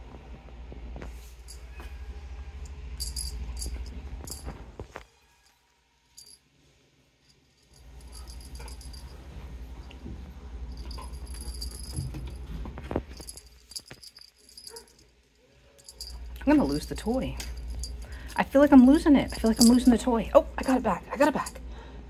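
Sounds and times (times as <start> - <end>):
cat toy jingling and rattling: 2.8 - 4.6, 7.3 - 9.4, 10.6 - 21.6.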